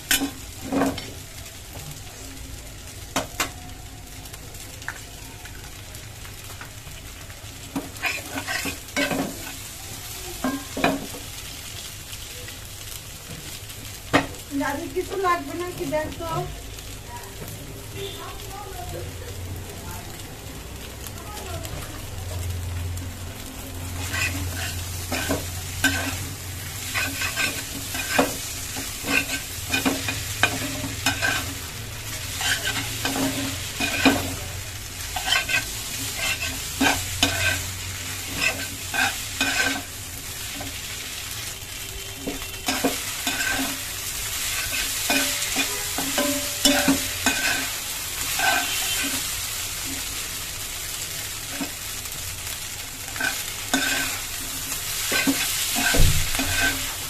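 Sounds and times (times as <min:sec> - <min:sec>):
food sizzling in a pan: 0:00.0 - 0:57.0
metal spatula scraping pan: 0:08.0 - 0:09.5, 0:24.0 - 0:34.4, 0:35.1 - 0:39.9, 0:42.2 - 0:49.3, 0:53.1 - 0:57.0.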